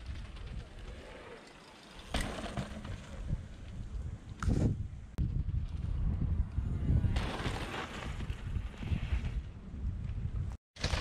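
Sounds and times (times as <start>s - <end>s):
wind buffeting microphone: 3.0s - 10.6s
bike tyres scrubbing through dirt: 7.0s - 9.4s.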